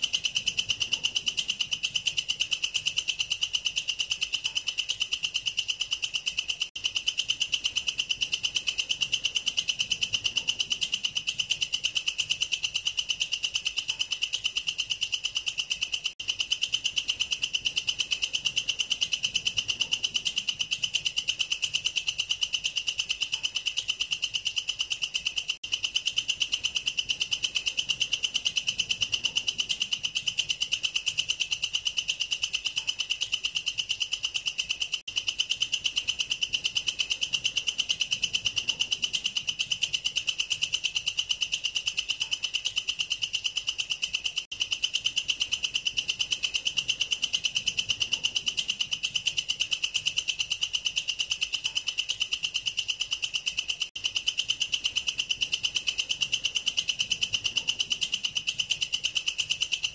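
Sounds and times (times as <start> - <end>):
katydid stridulating: 0.0 - 59.9.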